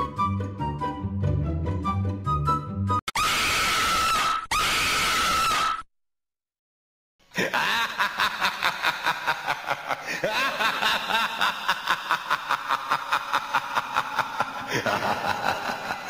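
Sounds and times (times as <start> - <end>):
cackling laughter: 7.3 - 16.0.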